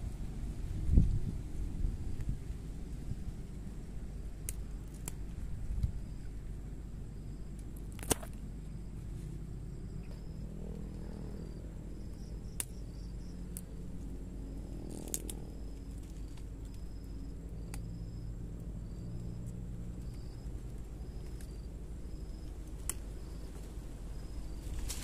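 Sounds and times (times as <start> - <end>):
low steady hum: 0.0 - 25.0
insect chirps: 0.2 - 25.0
plant stems snapping: 4.4 - 6.0, 7.6 - 8.4, 12.4 - 12.9, 14.8 - 16.8, 22.7 - 23.7, 24.6 - 25.0.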